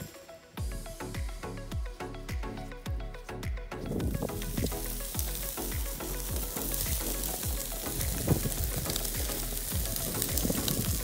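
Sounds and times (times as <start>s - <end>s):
background music with drum beat: 0.0s - 11.0s
meat sizzling on grill: 4.0s - 11.0s.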